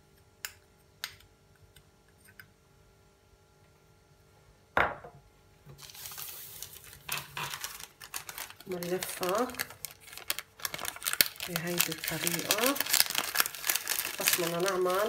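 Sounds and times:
glass bowl knocking on countertop: 4.8s - 5.2s
baking paper rustling: 5.7s - 15.0s.

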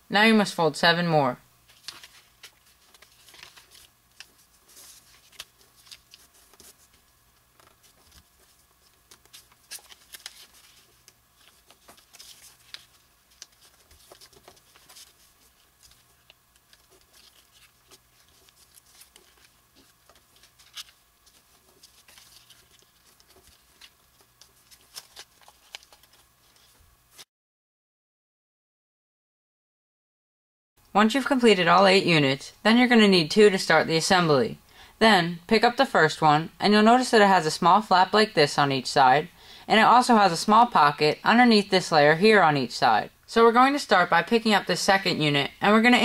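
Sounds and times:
paper rustling and creasing: 1.6s - 27.3s.

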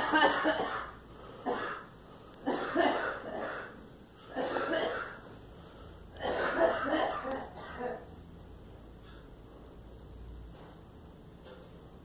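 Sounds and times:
woman coughing: 0.0s - 1.9s, 2.5s - 5.2s, 6.2s - 8.1s.

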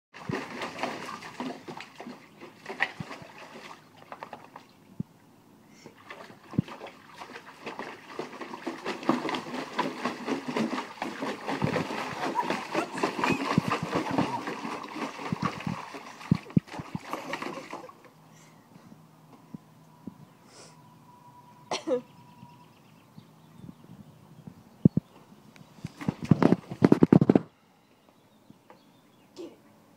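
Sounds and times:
water splashing in a pool: 0.2s - 4.7s, 5.9s - 18.2s.

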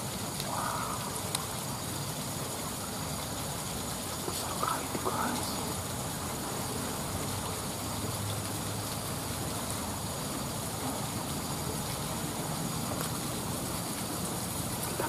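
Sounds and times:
river flowing: 0.0s - 15.0s.

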